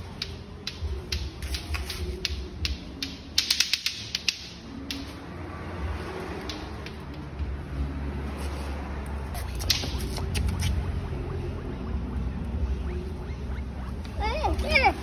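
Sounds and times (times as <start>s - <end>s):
sharp clicks and taps: 0.0s - 5.2s, 6.2s - 7.6s
low steady hum: 9.3s - 15.0s.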